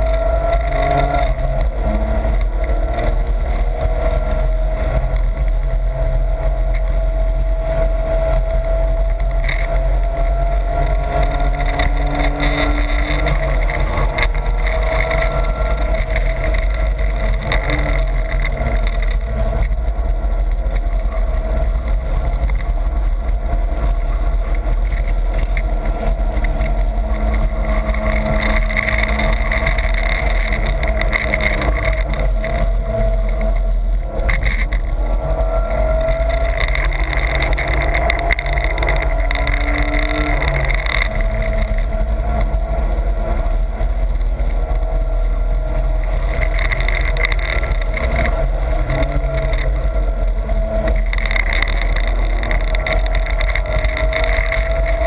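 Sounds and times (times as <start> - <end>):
car engine running hard: 0.0 - 55.0
tyre noise: 0.0 - 55.0
wind noise: 0.0 - 55.0.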